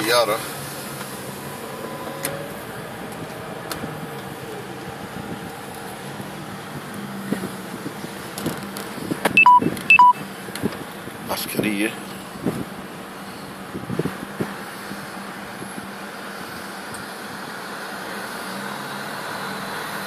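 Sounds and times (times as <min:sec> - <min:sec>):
road and engine noise in car: 0:00.0 - 0:20.0
short electronic beeps: 0:09.4 - 0:10.2.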